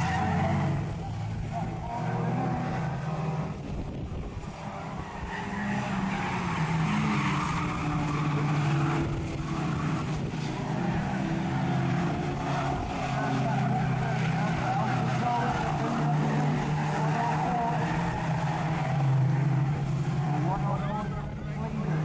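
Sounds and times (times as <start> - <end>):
race car engines passing: 0.0 - 22.0
tyres skidding: 0.0 - 22.0.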